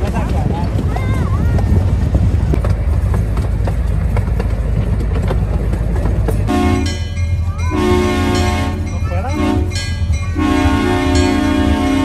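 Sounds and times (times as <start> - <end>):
train wheels rumbling and clicking: 0.0 - 12.0
locomotive horn blast: 6.5 - 7.1, 7.7 - 12.0.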